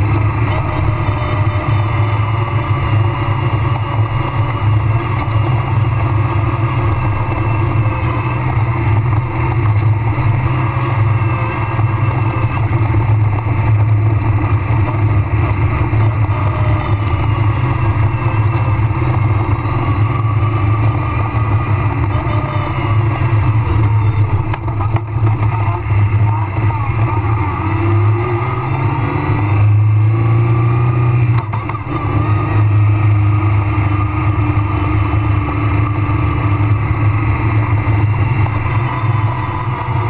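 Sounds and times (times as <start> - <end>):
rally car engine: 0.0 - 40.0.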